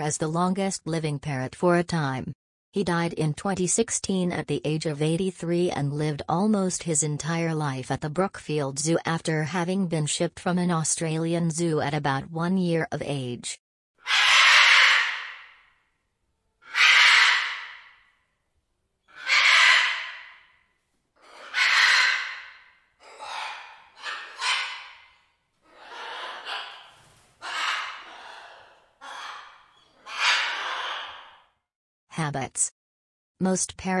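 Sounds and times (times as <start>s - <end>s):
macaw squawking: 14.0s - 15.6s, 16.6s - 18.0s, 19.0s - 20.5s, 21.2s - 31.4s.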